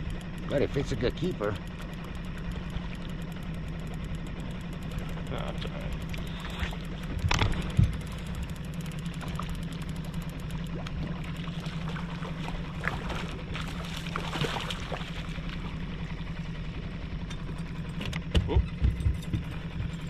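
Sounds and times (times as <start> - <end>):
outboard motor running: 0.0 - 20.0
fish splashing: 10.6 - 16.1.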